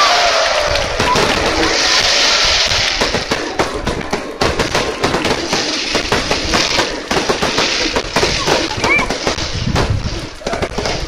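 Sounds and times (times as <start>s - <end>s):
fireworks bangs and crackles: 0.0s - 11.0s.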